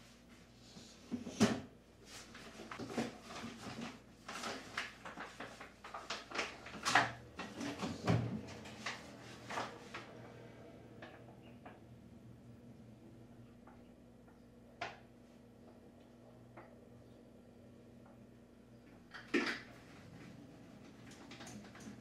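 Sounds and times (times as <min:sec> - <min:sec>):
faint low hum: 0:00.0 - 0:22.0
objects knocking and clattering: 0:19.1 - 0:19.8.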